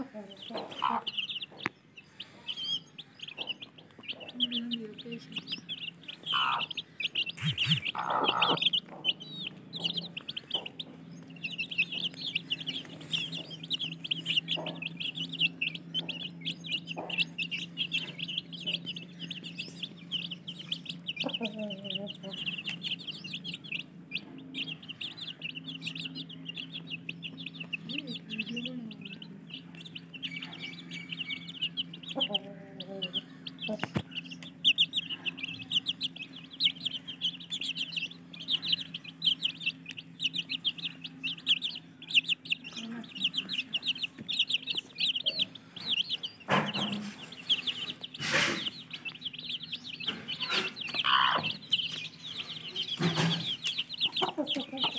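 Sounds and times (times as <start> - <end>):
chicks peeping: 0.0 - 54.9
hen clucking: 0.0 - 54.9
low hum: 4.5 - 48.1.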